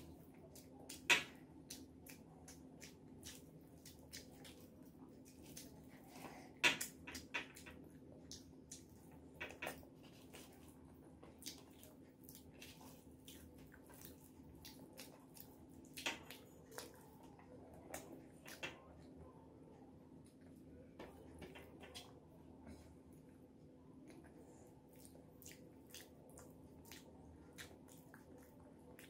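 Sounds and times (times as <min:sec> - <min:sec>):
wet chewing clicks: 0:00.0 - 0:06.0, 0:06.8 - 0:18.9, 0:24.0 - 0:29.0
fingers mixing rice: 0:00.0 - 0:18.9.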